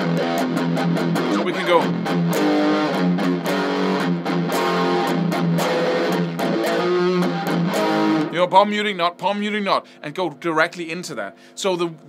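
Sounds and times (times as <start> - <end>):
distorted electric guitar picking: 0.0 - 10.0.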